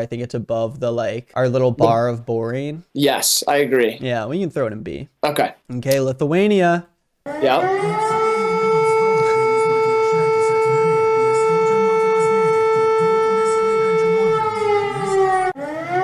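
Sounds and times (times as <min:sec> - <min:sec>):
civil-defence siren wailing: 0:07.3 - 0:16.0.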